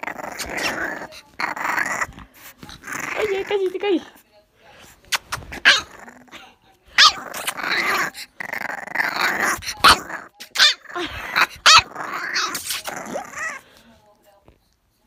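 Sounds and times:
puppy growling: 0:00.0 - 0:04.2, 0:05.1 - 0:13.8
puppy yipping: 0:05.2 - 0:06.0.

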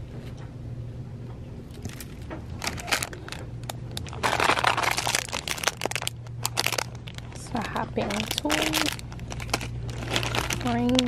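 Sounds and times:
steady low hum: 0:00.0 - 0:11.0
plastic packaging crinkling: 0:01.7 - 0:11.0.

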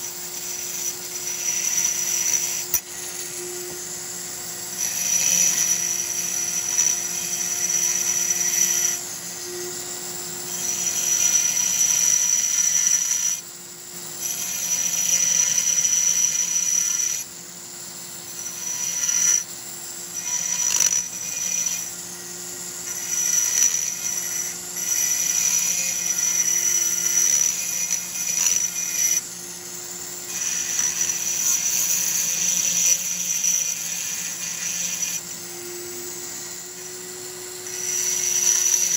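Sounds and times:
rotary tool grinding metal: 0:00.0 - 0:38.9.

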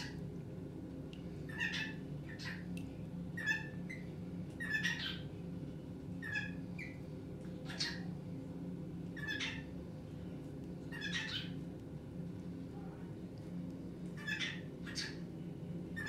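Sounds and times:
steady low hum: 0:00.0 - 0:16.0
cockatiel calling: 0:01.5 - 0:02.5, 0:04.6 - 0:05.2, 0:09.2 - 0:09.6, 0:10.9 - 0:11.5, 0:14.2 - 0:15.2.

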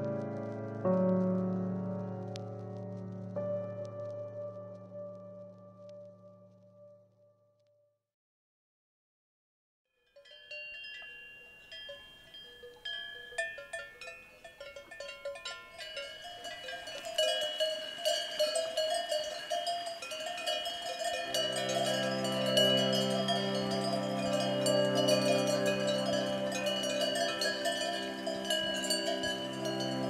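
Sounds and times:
cowbells clanking: 0:10.0 - 0:30.0.

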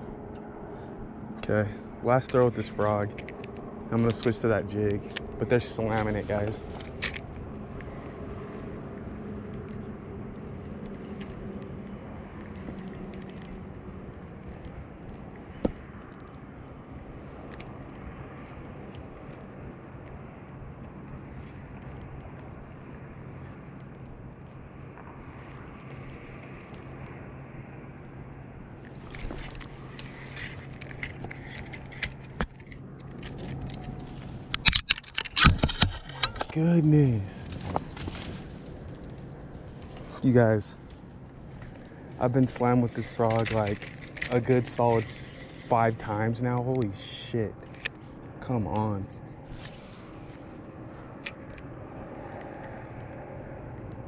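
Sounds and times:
fishing reel whirring: 0:41.6 - 0:47.9, 0:49.4 - 0:51.8.

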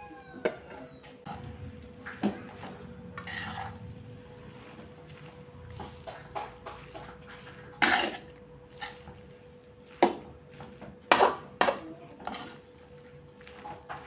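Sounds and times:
metal spatula scraping a wok: 0:02.4 - 0:04.9, 0:07.1 - 0:09.1, 0:11.1 - 0:12.8.

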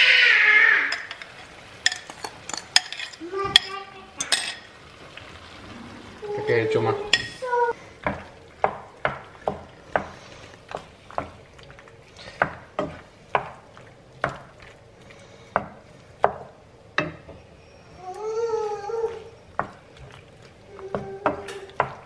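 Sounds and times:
wooden spoon knocking pan: 0:08.0 - 0:11.4, 0:12.4 - 0:14.5, 0:15.5 - 0:17.4, 0:20.9 - 0:22.0.

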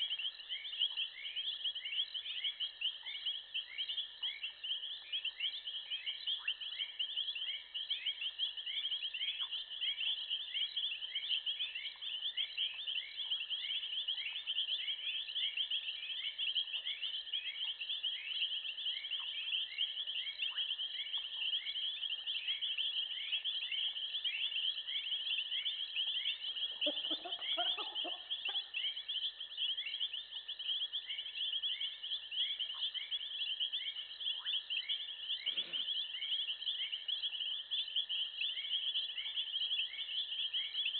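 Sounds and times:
insects chirping: 0:00.0 - 0:40.9
low animal call: 0:35.4 - 0:36.0.

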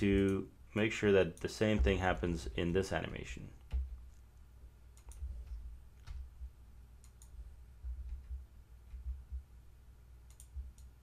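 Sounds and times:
computer mouse clicks: 0:05.0 - 0:06.3, 0:07.0 - 0:07.4, 0:10.3 - 0:11.0.

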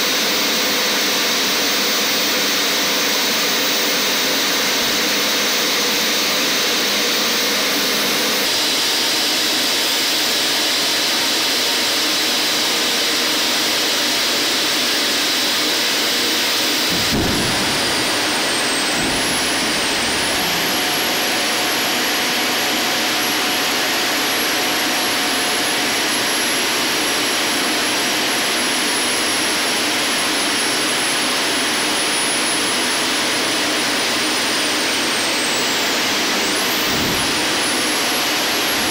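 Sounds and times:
hydraulic pumps rushing whine: 0:00.2 - 0:38.9
short low thump: 0:16.8 - 0:21.5, 0:36.8 - 0:38.0.

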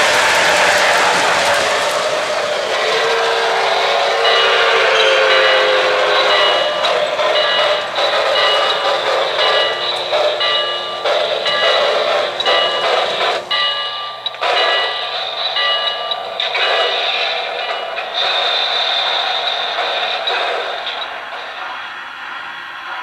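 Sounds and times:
steam hiss: 0:00.0 - 0:23.0
whistle tone: 0:02.7 - 0:13.1
bell-like rings: 0:02.8 - 0:21.2.

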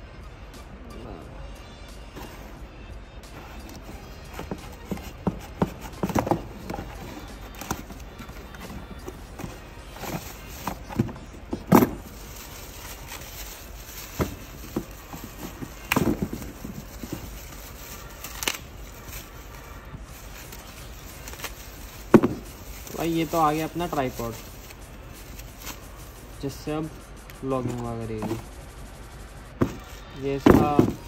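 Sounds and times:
cardboard box scrapes and knocks: 0:03.6 - 0:18.5, 0:21.2 - 0:24.4, 0:27.6 - 0:28.5, 0:29.5 - 0:31.0.

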